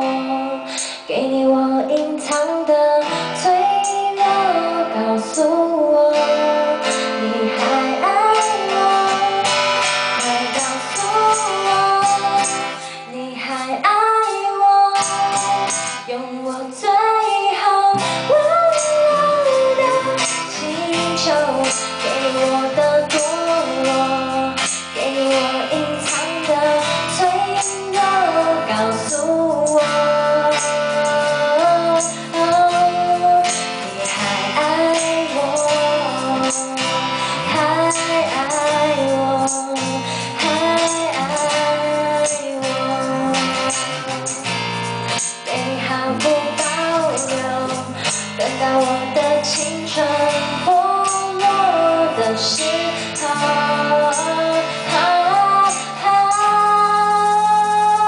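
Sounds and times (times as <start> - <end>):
strummed acoustic guitar: 0.0 - 58.0
woman singing: 0.0 - 58.0
electric bass: 18.0 - 58.0.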